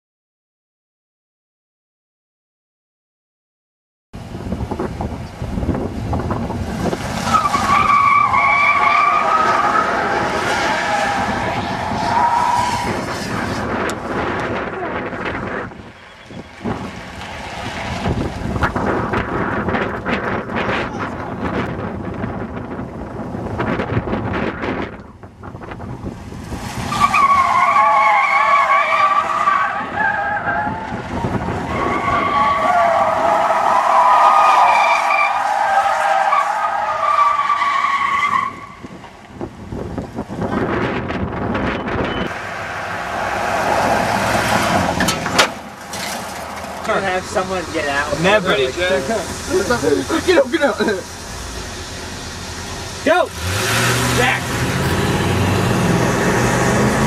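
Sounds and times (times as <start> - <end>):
tire squeal: 6.8 - 21.0, 26.5 - 39.0, 40.3 - 57.0
car engine revving hard: 42.3 - 45.4, 47.2 - 57.0.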